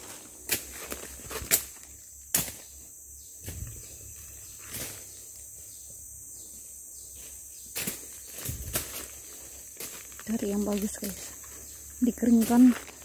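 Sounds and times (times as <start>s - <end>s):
insects droning: 0.0s - 13.0s
dry leaves rustling: 7.1s - 13.0s.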